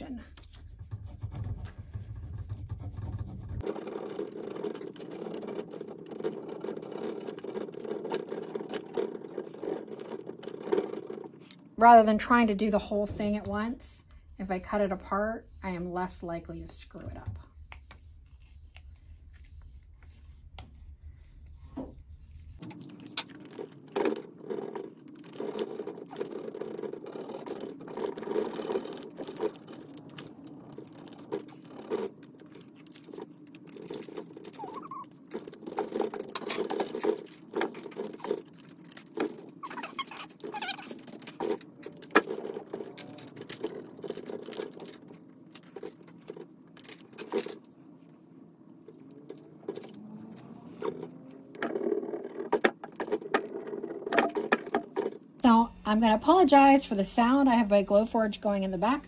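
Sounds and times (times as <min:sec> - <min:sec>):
plastic sheet crinkling: 0:22.6 - 0:47.8.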